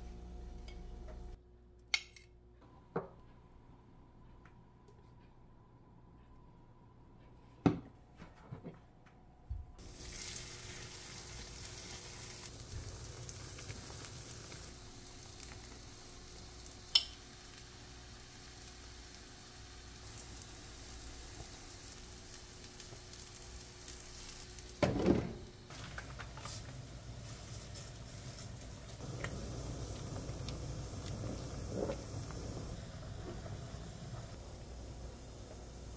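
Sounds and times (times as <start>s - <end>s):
batter sizzling in oil: 9.8s - 35.9s.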